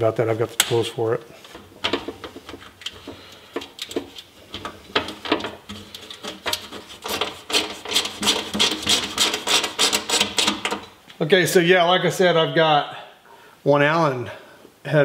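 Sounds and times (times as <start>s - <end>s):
hand tool scraping metal: 2.9s - 10.8s.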